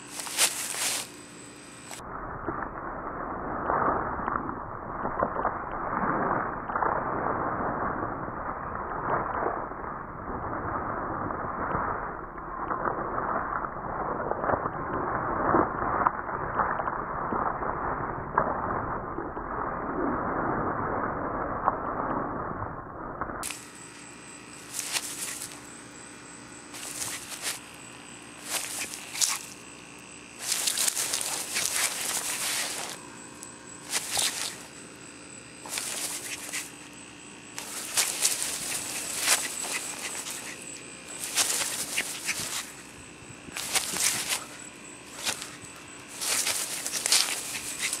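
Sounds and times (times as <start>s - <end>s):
dog running through grass: 0.0s - 1.2s, 24.6s - 25.7s, 26.8s - 29.6s, 30.4s - 33.2s, 33.8s - 34.7s, 35.6s - 36.8s, 37.6s - 42.9s, 43.5s - 48.0s.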